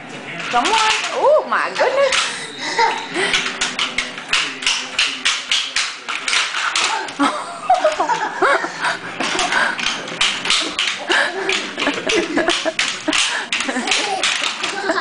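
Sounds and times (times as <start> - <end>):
roller skates clacking on tile: 3.2 - 7.2, 9.2 - 15.0.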